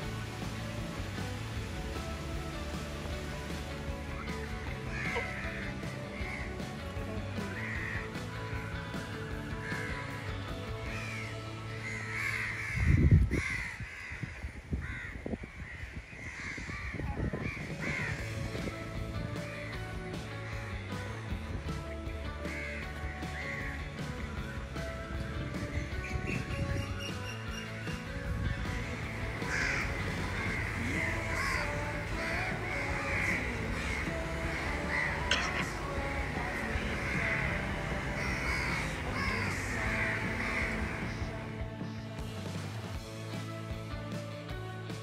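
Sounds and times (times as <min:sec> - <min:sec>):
soft background music: 0:00.0 - 0:14.1, 0:15.6 - 0:45.0
crows cawing: 0:04.1 - 0:18.4, 0:19.3 - 0:21.2, 0:22.4 - 0:24.1, 0:28.5 - 0:41.6.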